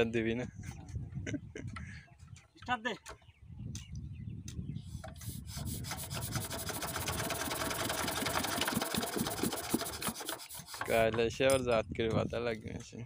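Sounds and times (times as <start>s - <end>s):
diesel engine hand-cranked: 5.0s - 11.8s
diesel engine rasping rhythm: 5.2s - 10.9s.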